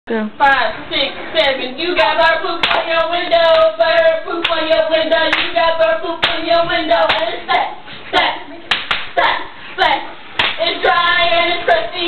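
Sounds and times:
sharp hand claps: 0:02.6 - 0:02.9, 0:05.3 - 0:05.5, 0:08.7 - 0:09.1, 0:10.4 - 0:10.6.

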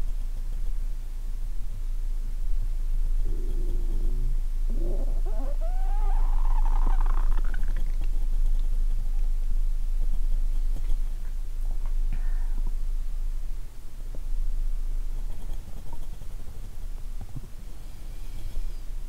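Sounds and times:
steady low hum: 0:00.0 - 0:19.0
stomach gurgling: 0:03.3 - 0:08.1.

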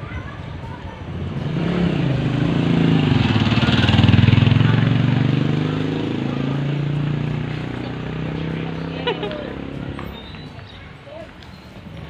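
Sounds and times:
vehicle passing by: 0:01.0 - 0:10.6.

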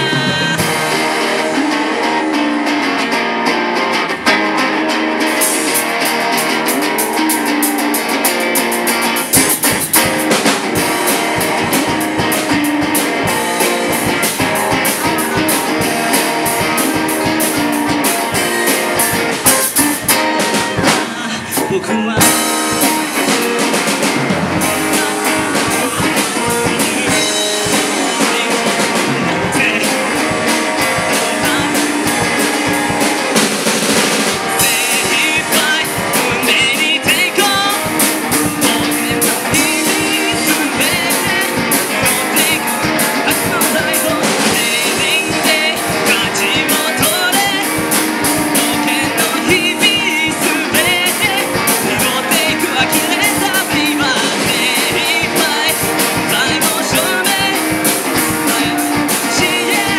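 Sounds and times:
man singing into microphone: 0:00.0 - 0:02.5, 0:18.2 - 0:23.8, 0:24.5 - 0:33.4, 0:34.3 - 0:59.9
live rock band playing: 0:00.0 - 0:59.9.

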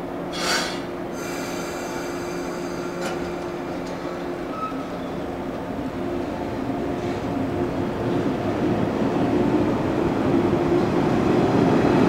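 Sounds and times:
train equipment humming: 0:00.0 - 0:12.0
clunk: 0:03.0 - 0:04.0.

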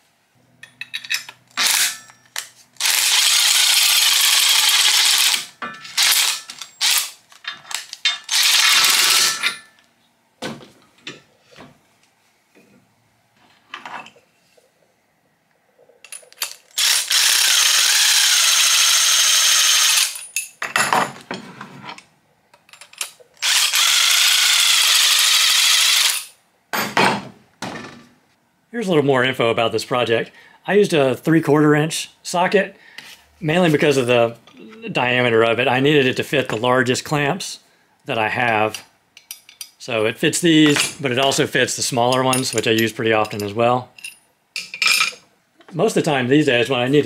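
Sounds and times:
impact driver spinning screws: 0:01.6 - 0:07.2, 0:08.2 - 0:09.4, 0:16.7 - 0:20.2, 0:23.4 - 0:26.3.

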